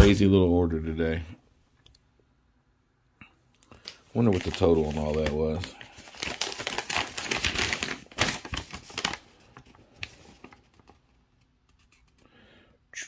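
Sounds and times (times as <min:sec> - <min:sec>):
paper rustling and crinkling: 0:03.8 - 0:12.2.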